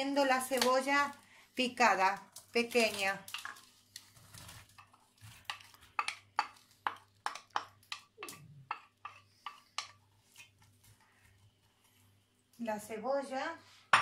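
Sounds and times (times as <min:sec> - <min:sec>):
wooden spoon tapping a bowl: 0:05.5 - 0:10.0.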